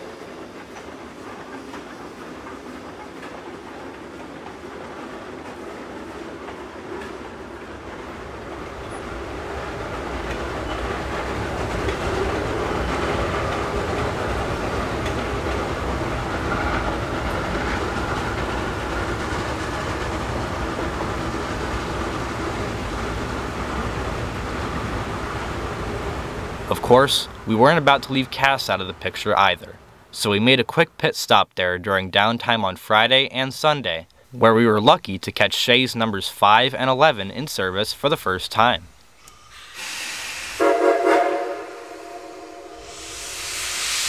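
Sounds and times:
steam train rumbling on rails: 0:00.0 - 0:30.1, 0:39.4 - 0:44.0.

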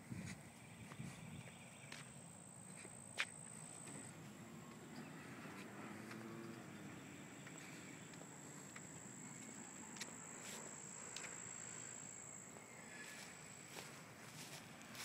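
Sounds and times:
faint outdoor hiss: 0:00.0 - 0:15.0.

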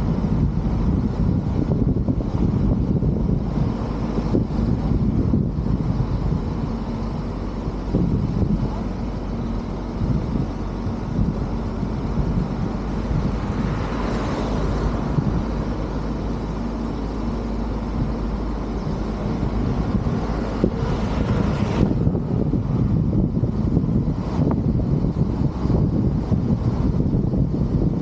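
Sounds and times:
road rumble: 0:00.0 - 0:28.0
wind rush: 0:00.0 - 0:28.0
oncoming car passing: 0:11.1 - 0:27.0.

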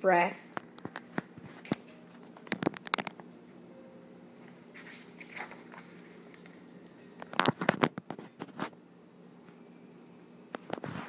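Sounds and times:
low room hum: 0:00.0 - 0:11.0
book pages turning and rustling: 0:00.6 - 0:03.3, 0:04.3 - 0:08.8, 0:10.6 - 0:11.0.

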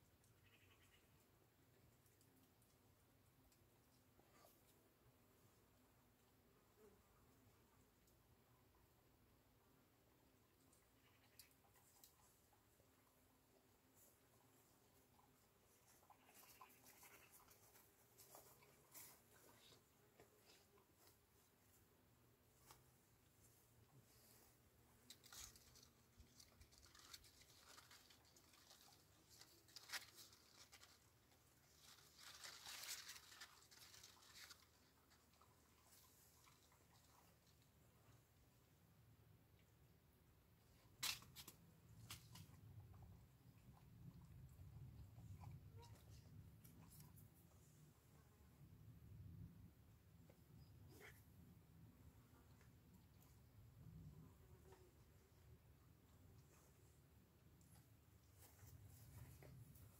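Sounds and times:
faint background hiss: 0:00.0 - 0:59.9
leaves rustling: 0:22.5 - 0:37.7.

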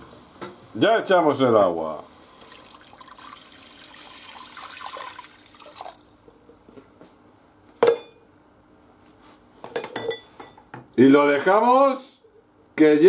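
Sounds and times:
water pouring into a pot: 0:01.9 - 0:06.7.

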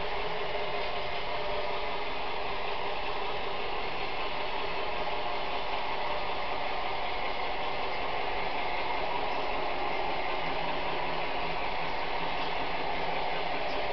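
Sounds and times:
locomotive gearing whir: 0:00.0 - 0:13.9.

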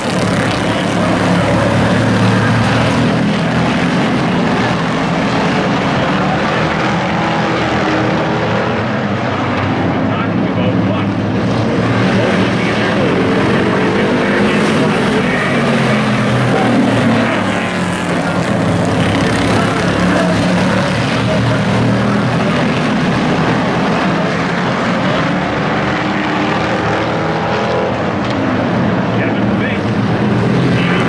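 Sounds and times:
racing truck engines droning: 0:00.0 - 0:31.0.

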